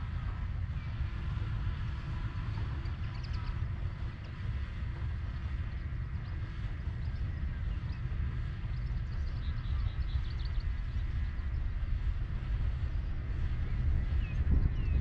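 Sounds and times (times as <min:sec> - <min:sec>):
faint high whine: 0:00.0 - 0:15.0
locomotive engine rumble: 0:00.0 - 0:15.0
bird chirps: 0:08.7 - 0:11.1.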